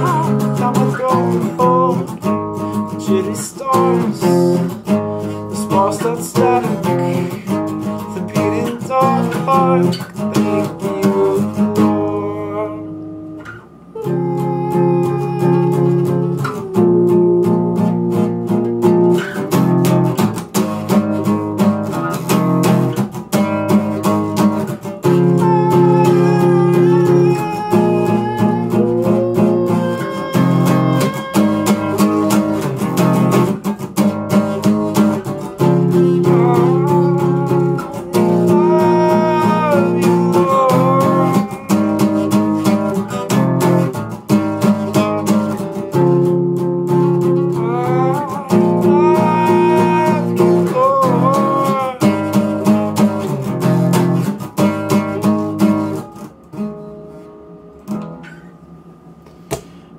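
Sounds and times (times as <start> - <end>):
person singing wordless melody: 0.0 - 4.8, 5.4 - 18.0, 25.0 - 33.3, 35.6 - 43.9, 47.1 - 53.1
acoustic guitar strumming: 0.0 - 59.9.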